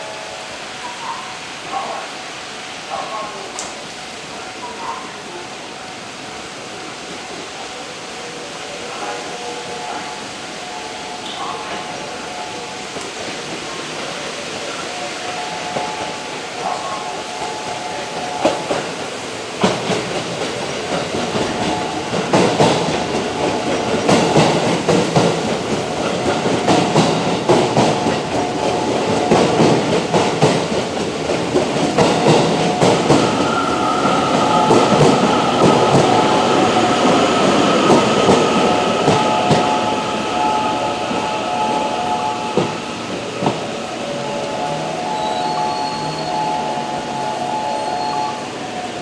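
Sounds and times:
electric train braking: 20.6 - 49.0
steady whine: 32.3 - 49.0.

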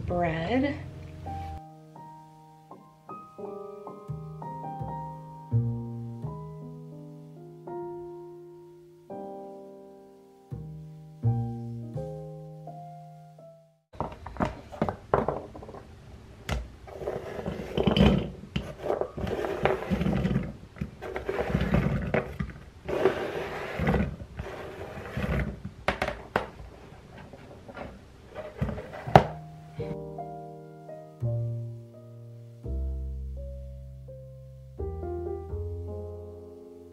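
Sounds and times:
carrot slices scraped across board: 18.6 - 20.4, 22.9 - 25.5.

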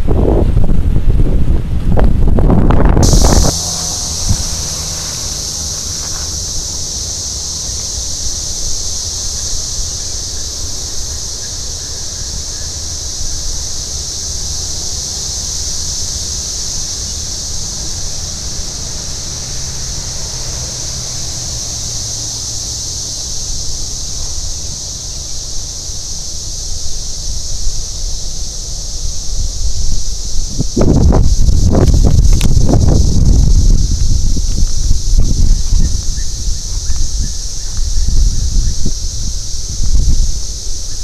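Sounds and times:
faint vehicle hum: 0.0 - 41.0
steady high-pitched hiss: 0.0 - 41.0
wind rumbling on microphone: 0.0 - 41.0.

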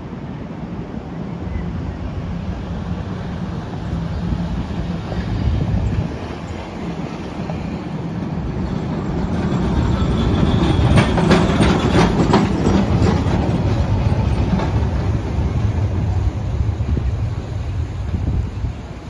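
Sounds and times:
streetcar rumbling past: 0.0 - 19.0
wheels clicking on rails: 4.3 - 17.2.

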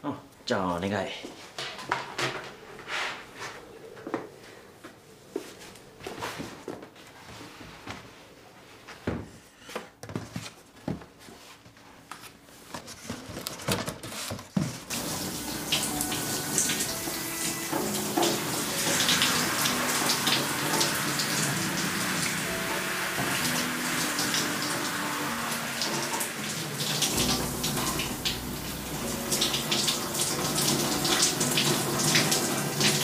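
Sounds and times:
shower running: 14.9 - 33.0.

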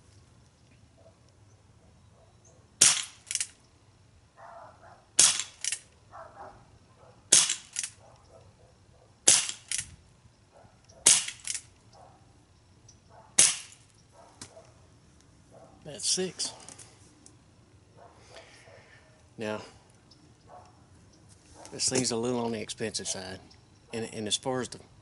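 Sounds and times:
pellet revolver pops: 2.8 - 3.5, 5.2 - 5.9, 7.3 - 8.0, 9.2 - 9.9, 11.0 - 11.6, 13.4 - 14.6.

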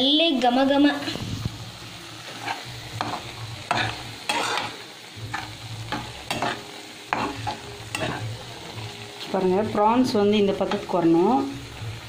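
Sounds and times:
gravy simmering hiss: 0.0 - 12.0
metal spatula scraping pan: 2.3 - 9.4.

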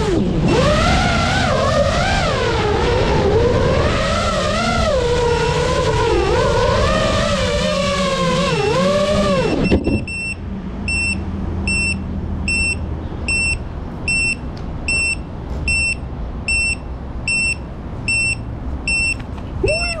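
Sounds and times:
quadcopter motors whining: 0.0 - 10.3
short high beeps: 9.6 - 19.2.

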